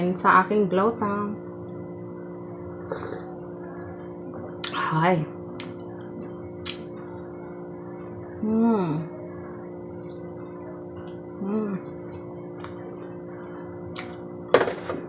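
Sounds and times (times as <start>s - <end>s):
electrical hum: 0.0s - 15.0s
woman making wordless sounds: 8.4s - 9.2s, 11.4s - 12.1s.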